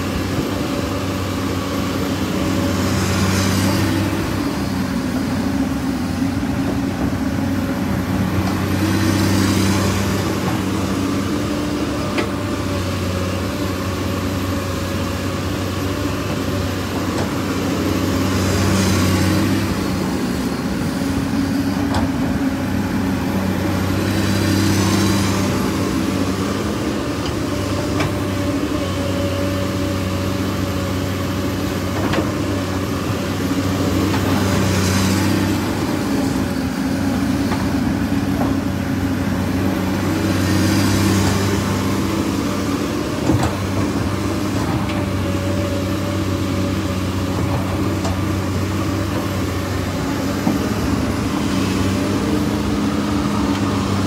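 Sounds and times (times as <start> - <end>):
engine running: 0.0 - 54.0.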